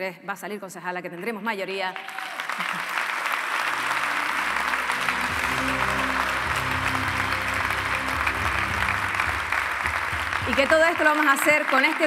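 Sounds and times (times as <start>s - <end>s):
audience applauding: 1.9s - 12.0s
music with low bass: 4.8s - 10.6s.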